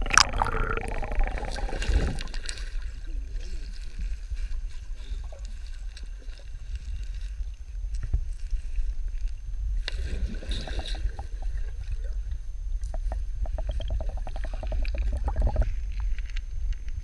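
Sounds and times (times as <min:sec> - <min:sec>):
underwater clicks: 0:00.0 - 0:02.9, 0:12.8 - 0:17.0
muffled underwater river rumble: 0:00.0 - 0:17.0.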